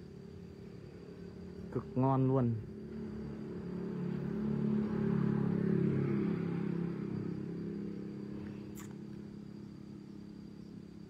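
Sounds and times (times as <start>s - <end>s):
vehicle driving past: 2.6s - 10.4s.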